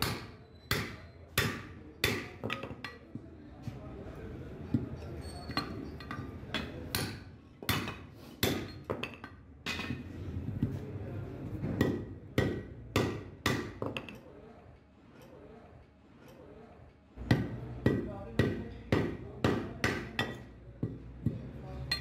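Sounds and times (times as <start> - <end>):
hammer striking steel: 0.0 - 3.0, 5.5 - 10.0, 11.7 - 14.2, 17.2 - 21.0.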